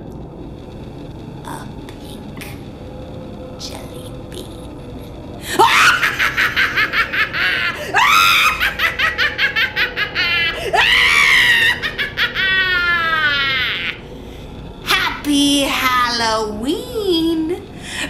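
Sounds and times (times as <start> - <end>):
woman's witch cackle: 5.5 - 14.0.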